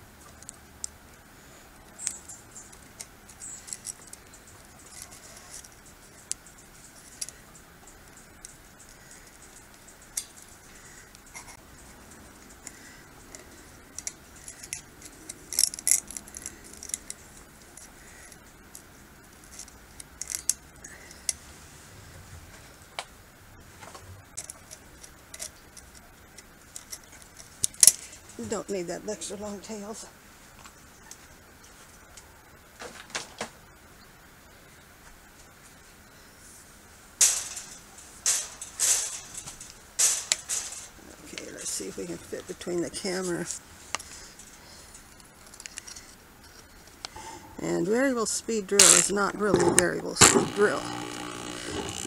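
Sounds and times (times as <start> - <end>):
pliers twisting wire clicks: 12.6 - 17.2, 19.4 - 20.6, 24.4 - 28.0, 37.2 - 41.5, 48.7 - 52.0.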